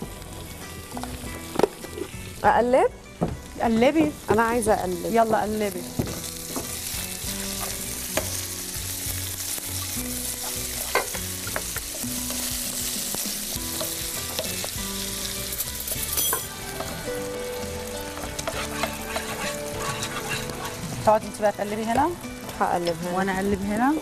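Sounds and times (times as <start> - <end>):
meat sizzling in a frying pan: 0.0 - 2.8, 3.4 - 24.0
wooden spoon scraping a pan: 18.2 - 22.0.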